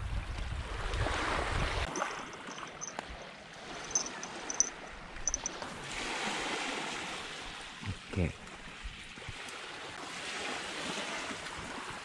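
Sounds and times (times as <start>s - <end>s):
wind rumbling on microphone: 0.0s - 3.1s
faint high ticks: 3.8s - 4.7s, 5.3s - 5.5s.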